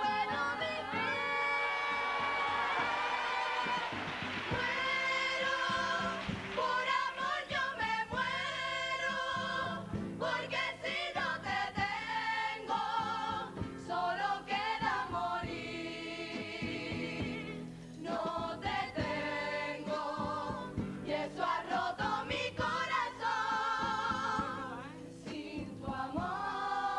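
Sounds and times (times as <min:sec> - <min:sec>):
choir singing: 0:00.0 - 0:26.9
guitar accompaniment: 0:00.0 - 0:26.9.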